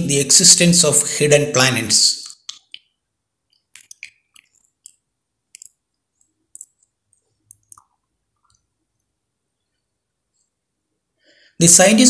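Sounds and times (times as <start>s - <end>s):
faint irregular clicks: 2.2s - 10.6s.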